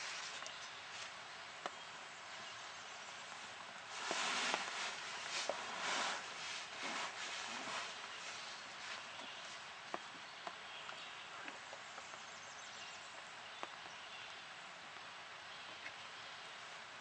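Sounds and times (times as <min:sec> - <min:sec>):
leaf litter rustling and crunching: 0:03.3 - 0:09.7.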